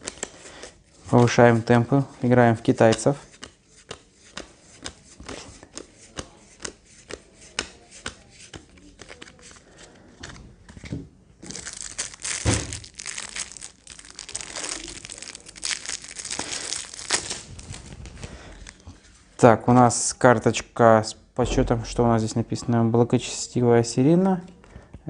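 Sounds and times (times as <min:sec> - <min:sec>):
plastic wrap crinkling and tearing: 0:11.4 - 0:18.9.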